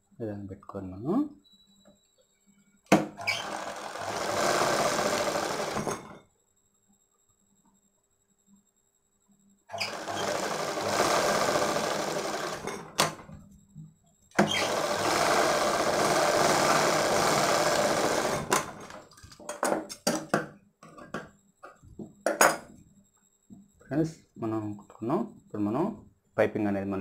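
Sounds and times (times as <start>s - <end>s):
sewing machine running: 3.2s - 6.2s, 9.7s - 13.2s, 14.4s - 19.0s.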